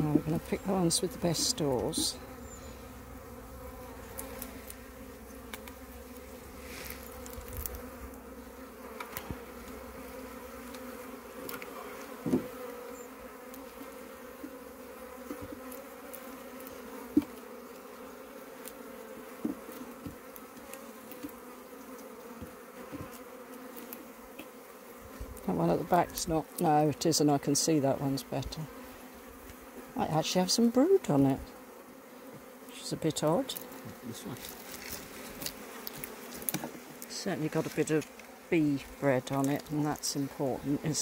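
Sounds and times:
honeybee colony humming: 0.0 - 41.0
hive tool knocking wooden frames: 11.5 - 12.8, 19.4 - 21.4, 22.0 - 23.2.

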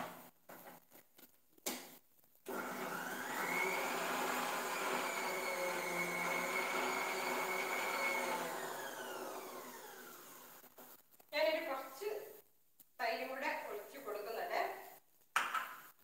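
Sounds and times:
mixer grinder motor whining: 2.5 - 10.6.

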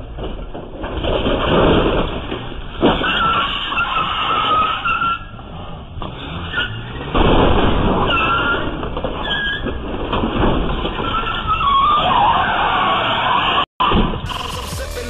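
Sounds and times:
car engine: 0.0 - 15.0
tyre squeals: 2.8 - 7.1, 7.8 - 9.9, 10.7 - 13.6.

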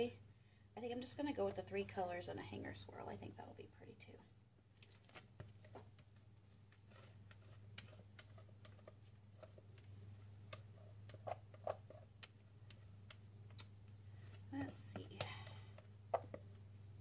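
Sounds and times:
faint clicks and taps: 4.8 - 16.6.

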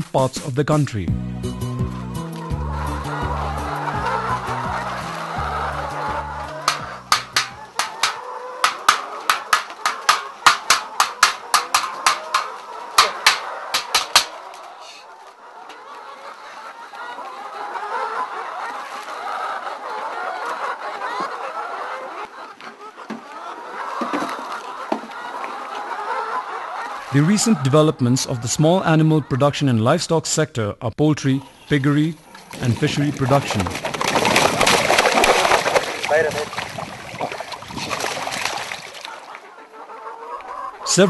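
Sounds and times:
chickens clucking: 0.0 - 41.0
sharp rapid knocks: 6.6 - 14.4.

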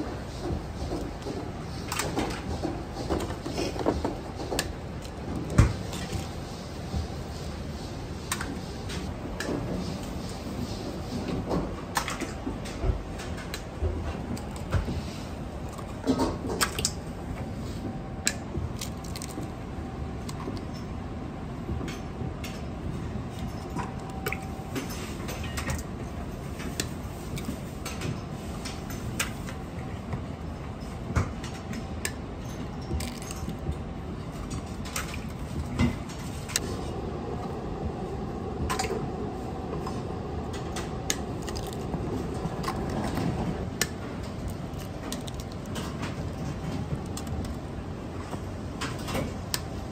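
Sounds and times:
kitchen hum: 22.7 - 49.9.

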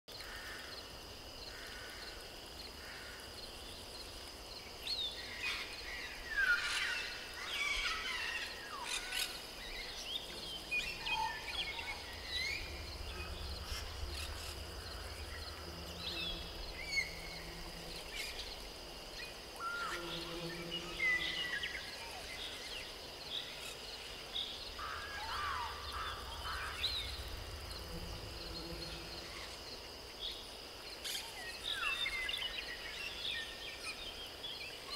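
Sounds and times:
high-pitched insect drone: 0.2 - 33.2.

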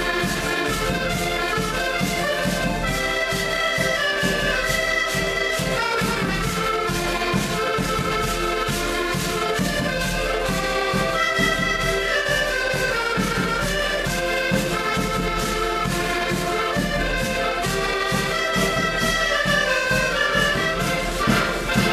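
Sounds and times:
button accordions playing folk tune: 0.0 - 21.9
bass drum beat: 20.9 - 21.9.

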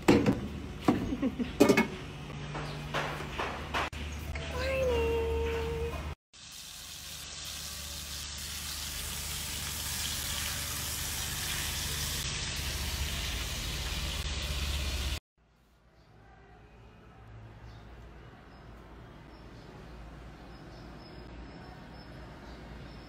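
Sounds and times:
meat sizzling in a pan: 6.4 - 15.2.

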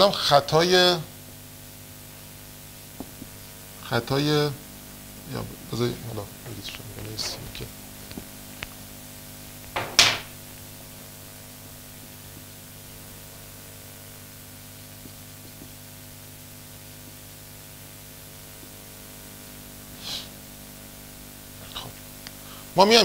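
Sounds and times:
electrical mains hum: 0.0 - 23.0
faint hiss: 19.4 - 20.5
short loud hissing: 20.0 - 20.4.

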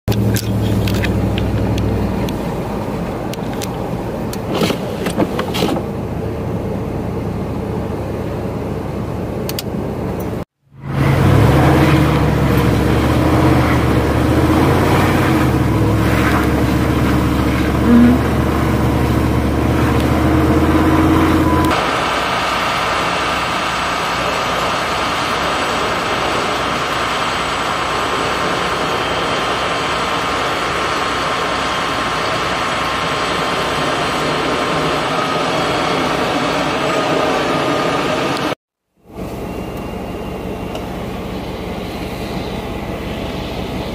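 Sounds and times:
engine idling: 0.1 - 5.1, 5.8 - 43.9
car engine hum: 0.1 - 43.9
road noise: 0.1 - 43.9
brief tone: 17.2 - 18.5, 20.3 - 21.8, 39.1 - 43.9.

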